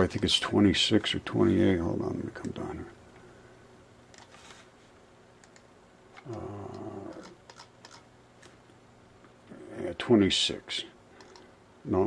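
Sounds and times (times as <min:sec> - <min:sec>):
computer mouse clicks: 0:04.1 - 0:04.4, 0:05.4 - 0:08.6, 0:11.2 - 0:11.5
man humming: 0:06.2 - 0:07.4.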